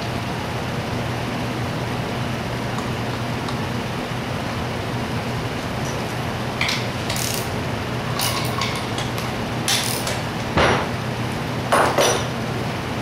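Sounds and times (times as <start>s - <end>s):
steady low hum: 0.0s - 13.0s
metal tools clicking: 6.6s - 7.5s, 8.2s - 10.2s.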